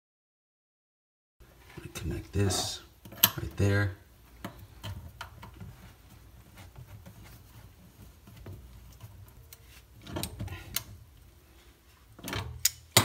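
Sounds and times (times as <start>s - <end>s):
pliers clicking on nut: 12.6s - 13.0s.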